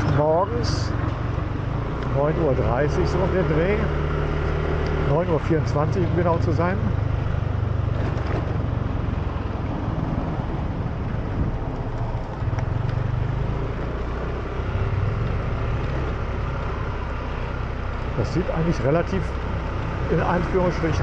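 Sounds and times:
motor scooter engine rumble: 0.0s - 21.0s.

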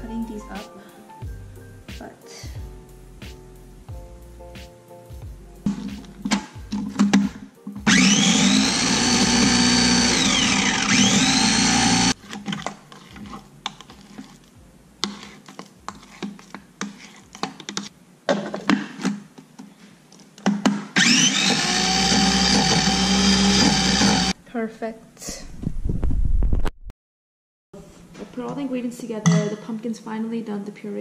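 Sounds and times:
food processor motor whine: 7.8s - 12.2s, 21.0s - 24.4s
spatula scraping plastic bowl: 11.5s - 17.9s.

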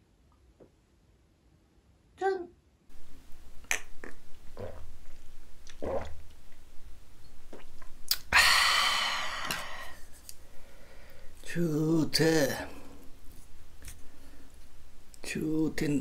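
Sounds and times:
wet mouth clicks: 3.6s - 6.4s, 7.5s - 8.3s
mouth swallowing sounds: 3.6s - 6.6s, 7.4s - 8.3s
breathy exhale: 8.3s - 11.4s.

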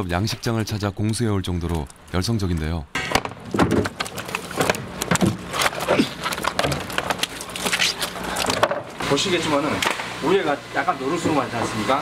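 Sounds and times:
water splashing: 3.4s - 9.0s.

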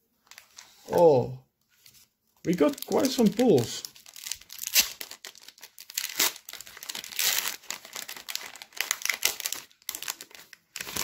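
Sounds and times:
foil wrapper crinkling: 2.5s - 11.0s.

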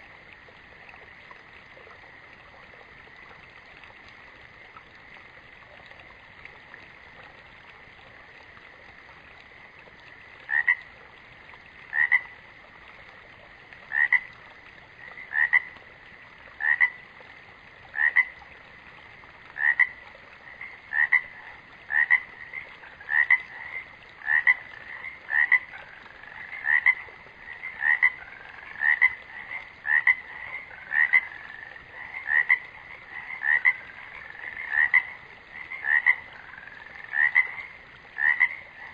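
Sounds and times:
frog croaking: 10.5s - 10.9s, 11.9s - 12.3s, 13.9s - 14.3s, 15.0s - 15.8s, 16.6s - 17.0s, 17.9s - 18.4s, 19.6s - 38.9s.

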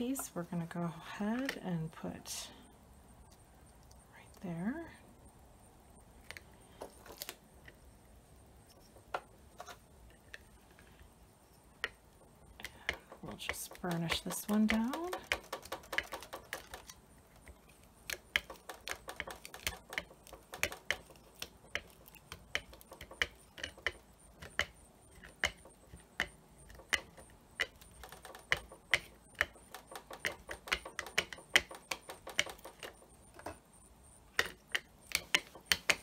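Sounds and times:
burnishing tool clicking on paper: 12.6s - 17.0s, 18.0s - 33.0s.

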